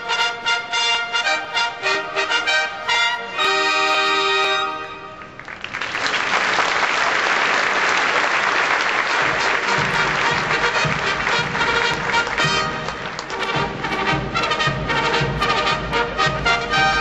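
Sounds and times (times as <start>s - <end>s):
audience applause: 5.2s - 15.5s
bugles holding a chord: 9.4s - 17.0s.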